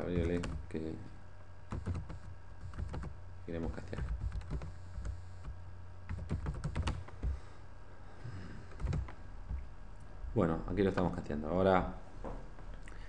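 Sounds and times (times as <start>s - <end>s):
typing on computer keyboard: 0.2s - 0.6s, 1.7s - 3.1s, 3.9s - 5.2s, 6.1s - 7.3s, 8.7s - 9.1s.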